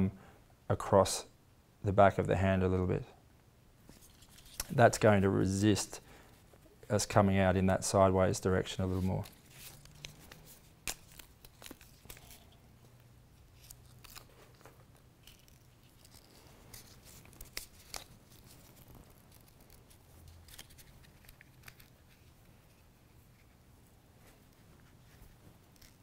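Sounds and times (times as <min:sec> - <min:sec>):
paper backing peeling off tape: 0:08.8 - 0:12.6, 0:13.4 - 0:23.5, 0:25.6 - 0:26.0.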